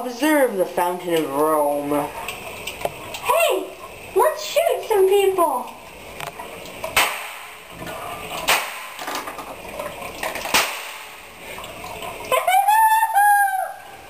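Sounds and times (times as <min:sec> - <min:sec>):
toilet flushing: 0:00.0 - 0:14.0
sharp cracks: 0:06.8 - 0:07.7, 0:08.3 - 0:09.5, 0:10.2 - 0:11.3.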